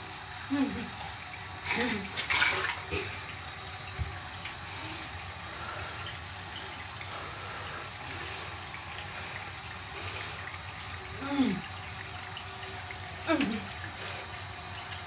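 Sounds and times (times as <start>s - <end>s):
tap running into sink: 1.7s - 4.6s.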